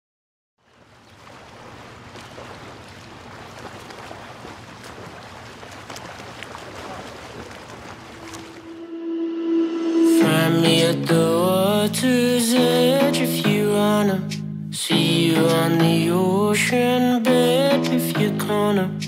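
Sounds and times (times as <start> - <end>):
small waves washing over sand: 0.6 - 8.8.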